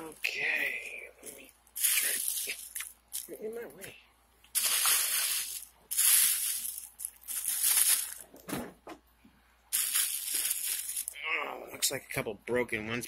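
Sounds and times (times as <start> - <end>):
plastic bag rustling: 1.2 - 3.4, 4.5 - 8.5, 9.7 - 11.2.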